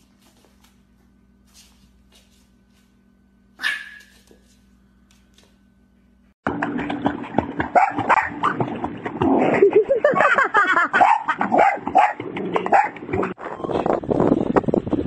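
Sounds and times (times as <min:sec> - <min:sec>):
small dog barking: 0:03.6 - 0:04.3, 0:07.8 - 0:08.4, 0:11.0 - 0:13.0
water splashing: 0:06.5 - 0:10.1.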